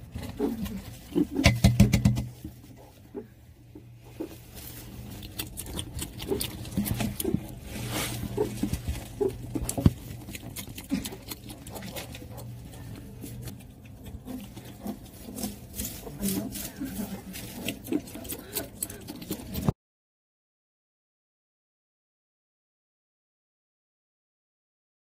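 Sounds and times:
low steady hum: 0:00.0 - 0:19.7
meerkat crunching food: 0:00.0 - 0:19.7
claws scratching through bedding: 0:02.5 - 0:19.7.

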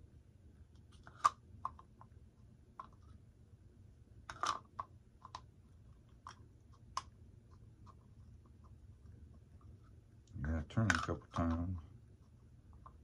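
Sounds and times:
plastic clicks and scrapes: 0:00.8 - 0:02.1.

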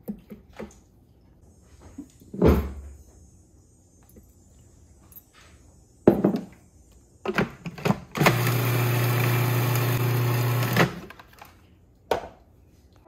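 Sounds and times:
food processor motor running: 0:08.2 - 0:11.1.

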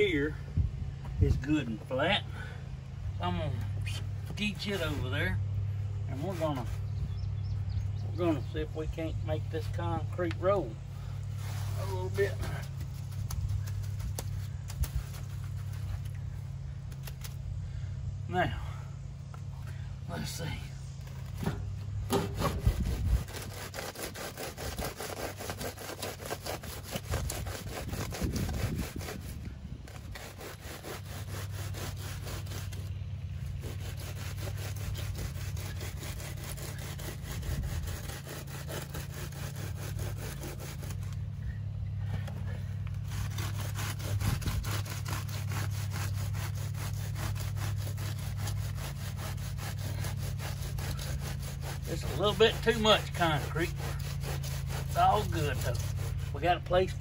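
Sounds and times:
wooden board scraping wet concrete: 0:06.1 - 0:07.1, 0:09.6 - 0:16.3, 0:20.1 - 0:41.3, 0:42.1 - 0:56.9.

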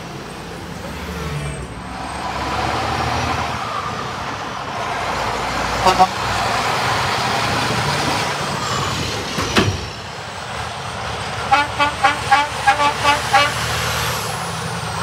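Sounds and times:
truck diesel engine passing: 0:00.0 - 0:15.0
truck horn toots: 0:05.8 - 0:06.3, 0:11.4 - 0:13.8.

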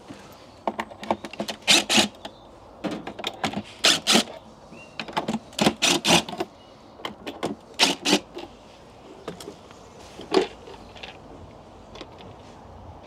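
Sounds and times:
cordless drill bursts: 0:01.6 - 0:02.2, 0:03.8 - 0:04.3, 0:05.7 - 0:06.3.

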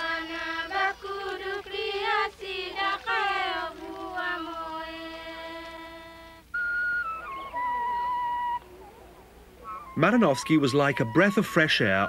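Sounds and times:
girls singing together: 0:00.0 - 0:06.4.

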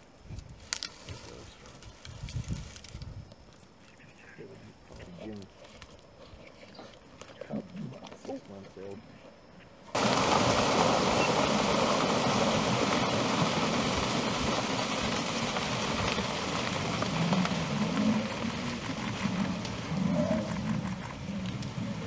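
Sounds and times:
hooves splashing through water: 0:10.0 - 0:22.0.

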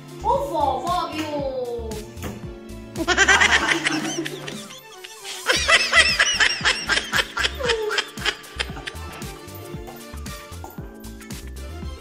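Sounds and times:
background music with a beat: 0:00.0 - 0:12.0
high-pitched giggling: 0:03.1 - 0:09.2.

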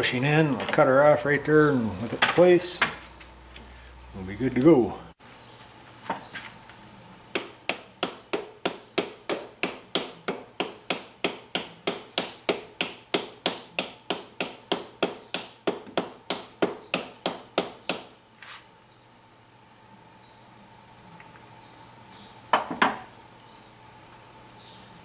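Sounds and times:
hammer tapping metal: 0:07.3 - 0:18.1.

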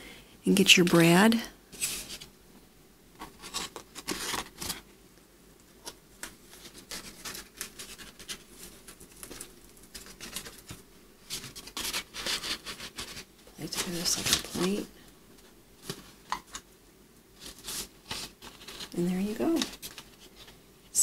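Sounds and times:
stiff paper rustling and scraping: 0:01.7 - 0:02.3, 0:03.2 - 0:04.9, 0:05.8 - 0:16.6, 0:17.4 - 0:20.6.

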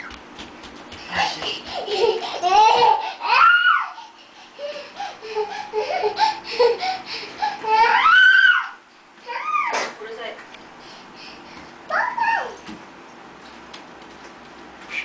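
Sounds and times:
child giggling and squealing: 0:01.8 - 0:06.8, 0:07.5 - 0:09.7
child babbling: 0:11.9 - 0:12.6.

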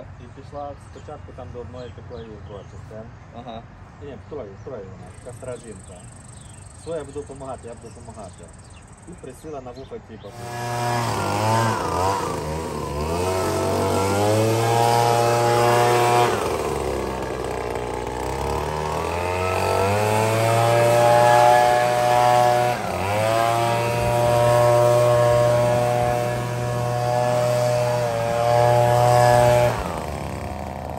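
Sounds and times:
leaf blower running: 0:10.3 - 0:30.9.

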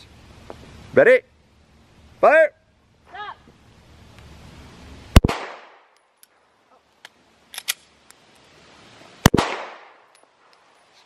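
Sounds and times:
handgun shots: 0:05.2 - 0:05.8
gunshot echo: 0:05.2 - 0:05.9, 0:09.3 - 0:10.0.

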